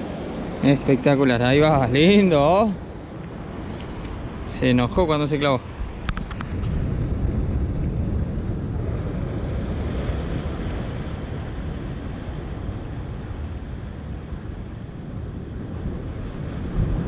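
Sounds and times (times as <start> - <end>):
surf washing against rocks: 0.0 - 7.7, 8.4 - 17.0
wind buffeting microphone: 0.0 - 17.0.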